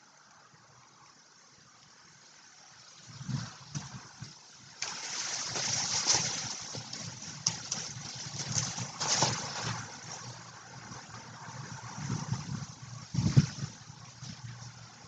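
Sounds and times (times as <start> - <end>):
dry leaves rustling and crunching: 4.8 - 10.4.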